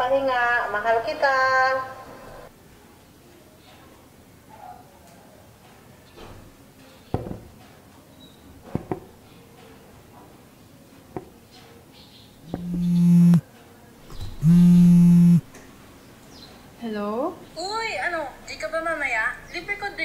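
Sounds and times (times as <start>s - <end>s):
light knocks: 7.1s - 7.6s, 8.6s - 9.2s
mobile phone vibrating: 12.5s - 13.4s, 14.2s - 15.5s.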